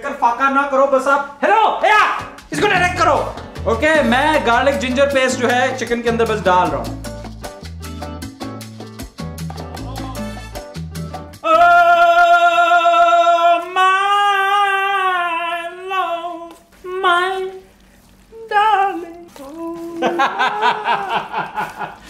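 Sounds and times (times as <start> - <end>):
people talking: 0.0 - 6.9, 18.4 - 21.6
people laughing: 20.0 - 22.0.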